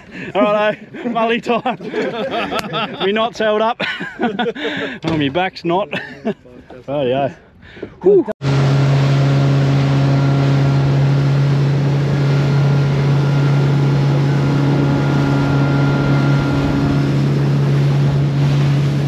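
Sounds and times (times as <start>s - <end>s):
boat engine droning: 8.4s - 19.0s
wind and water rushing: 8.4s - 19.0s.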